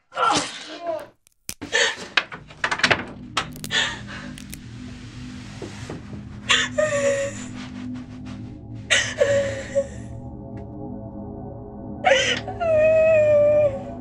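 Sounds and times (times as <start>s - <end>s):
low horror score drone: 2.2s - 14.0s
woman gasping and sobbing: 8.9s - 10.2s, 12.0s - 14.0s.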